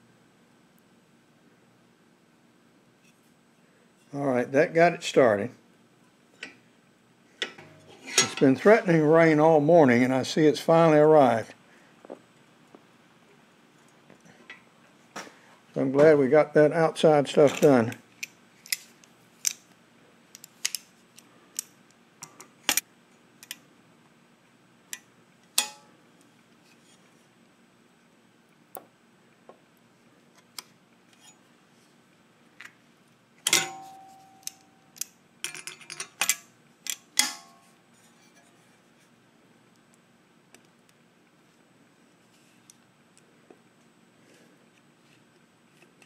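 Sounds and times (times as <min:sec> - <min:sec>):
metal pliers clicking and clanking: 0:33.5 - 0:37.6.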